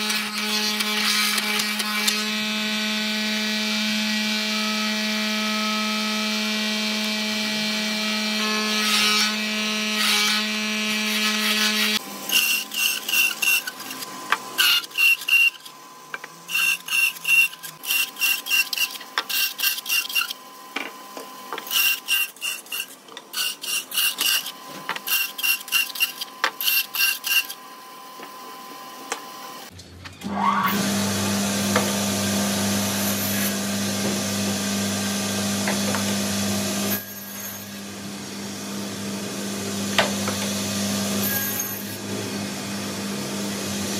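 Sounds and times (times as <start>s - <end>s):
bandsaw cutting wood: 0.0s - 27.6s.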